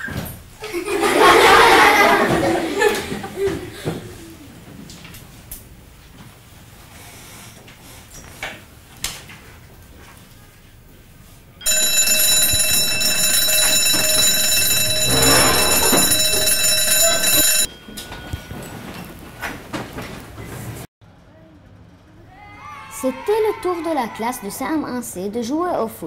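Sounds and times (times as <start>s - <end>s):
school bell ringing: 11.6s - 18.6s.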